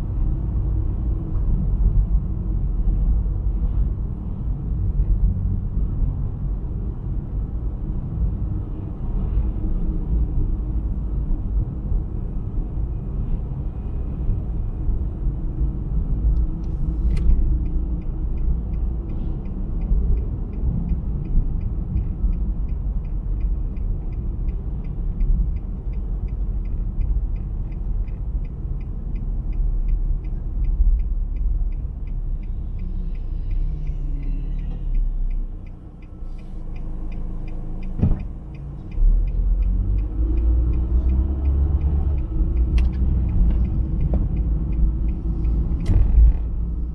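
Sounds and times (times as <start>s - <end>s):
car road and engine rumble: 0.0s - 46.9s.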